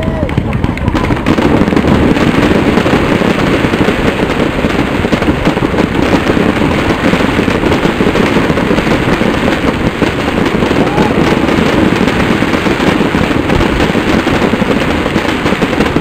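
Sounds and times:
fireworks crackling and bursting: 0.0 - 16.0.

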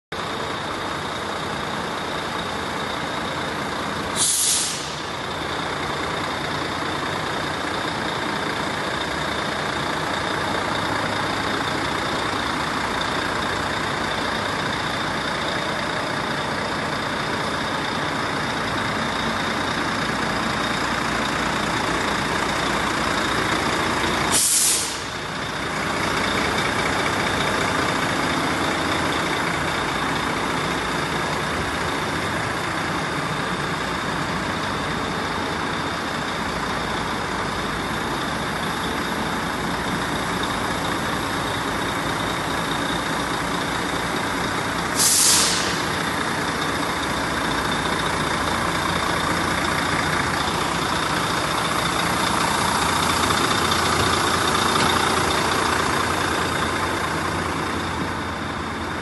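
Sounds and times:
diesel engine idling: 0.1 - 59.0
compressed air hiss: 4.2 - 5.1, 24.3 - 25.2, 44.9 - 45.9.

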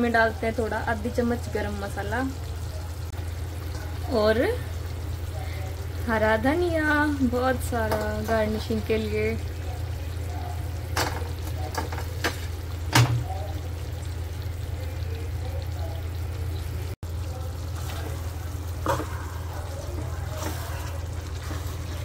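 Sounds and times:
spoon scraping cooking pot: 17.8 - 22.0.

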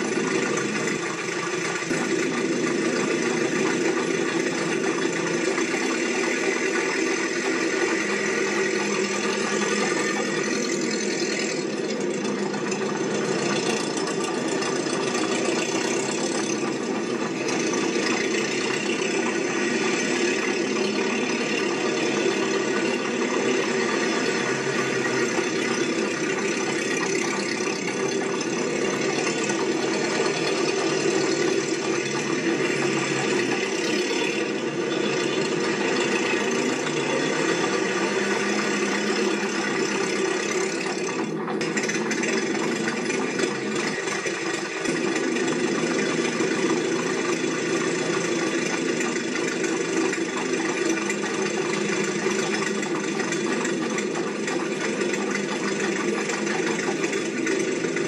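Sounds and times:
rattling mechanical running: 0.0 - 58.0.

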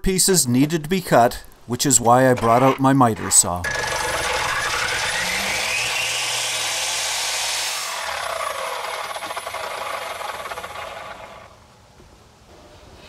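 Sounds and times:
miter saw cutting wood: 2.3 - 11.5
saw blade winding down whine: 2.4 - 11.6.

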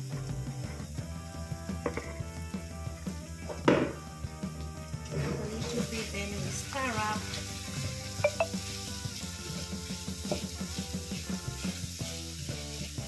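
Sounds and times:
cabbage sizzling: 0.0 - 13.0
wooden spatula scraping pan: 5.0 - 6.2, 8.6 - 11.3.

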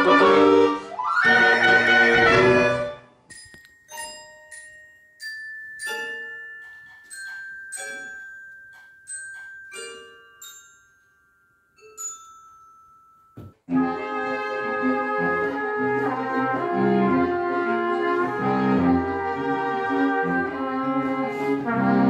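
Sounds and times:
toy piano notes: 3.3 - 13.8
glockenspiel notes: 3.3 - 14.7.

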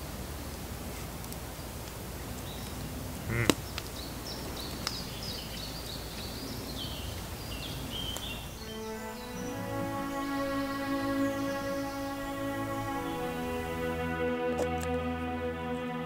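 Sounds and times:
low steady background noise: 0.0 - 16.0
small birds chirping: 2.4 - 14.0
rising pitched sound: 8.6 - 15.8.

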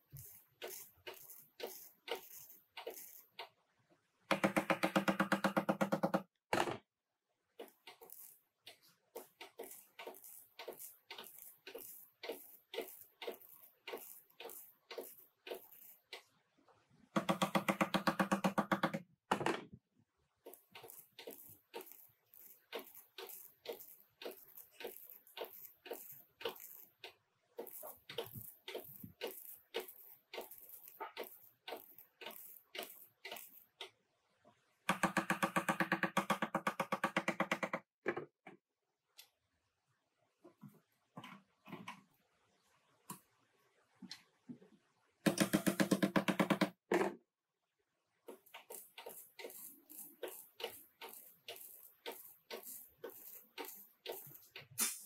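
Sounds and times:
steady buzzing weld: 20.5 - 26.9.

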